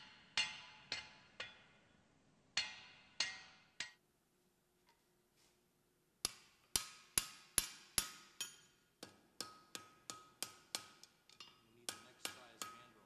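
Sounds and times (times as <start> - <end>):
hammer striking steel on anvil: 0.0 - 1.9, 2.6 - 4.0, 6.2 - 13.0.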